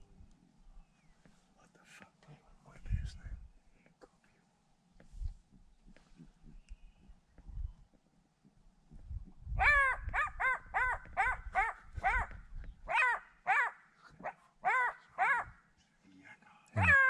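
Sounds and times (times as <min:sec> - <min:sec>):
jackal yelping: 0:09.6 - 0:15.6, 0:16.8 - 0:17.0.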